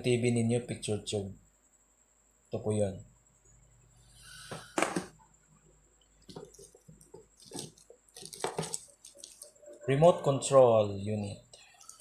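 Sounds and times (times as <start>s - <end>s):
plastic wrap and cardboard rustling: 6.3s - 9.7s.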